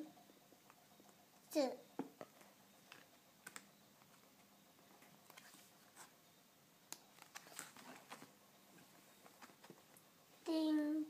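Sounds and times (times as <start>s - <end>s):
book pages rustling: 5.0s - 6.2s, 7.0s - 10.0s.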